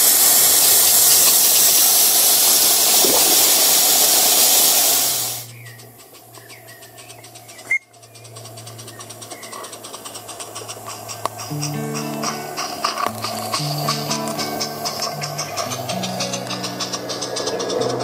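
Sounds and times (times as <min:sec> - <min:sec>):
steam hissing loudly: 0:00.0 - 0:05.5, 0:09.7 - 0:18.0
faint regular ticking: 0:05.0 - 0:18.0.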